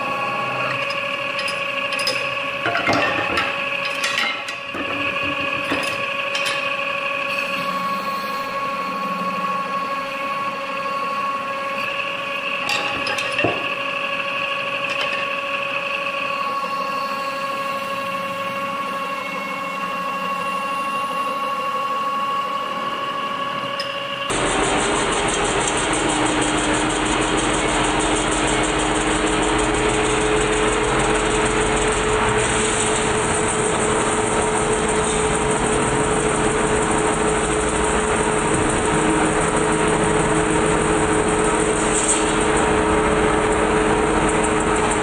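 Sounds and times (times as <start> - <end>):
lathe whine: 0.0 - 45.0
rough machine cutting noise: 23.7 - 45.0.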